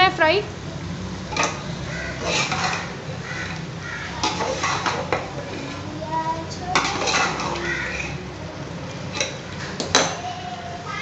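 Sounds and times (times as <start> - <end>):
metal ladle scraping a pot: 2.2 - 3.6, 4.2 - 5.9, 6.8 - 8.2.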